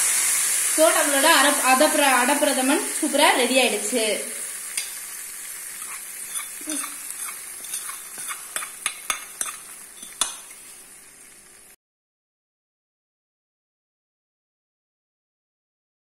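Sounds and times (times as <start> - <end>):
hot ghee sizzling and popping: 0.0 - 11.8.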